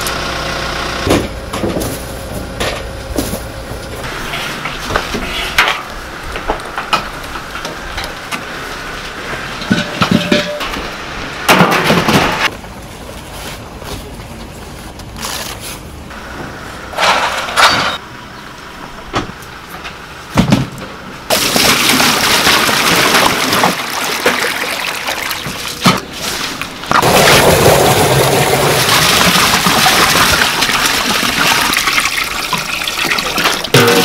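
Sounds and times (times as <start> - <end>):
pots knocking and clanking: 9.5 - 10.8
water pouring into a pot: 27.0 - 33.7.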